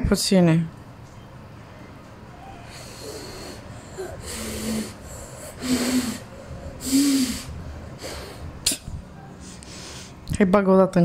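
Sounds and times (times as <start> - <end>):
child breathy puffs: 2.6 - 8.6.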